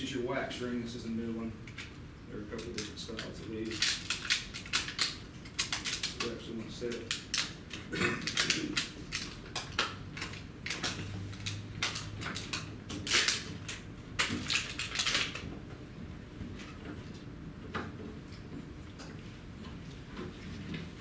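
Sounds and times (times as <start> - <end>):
hands handling packaging: 2.5 - 15.5.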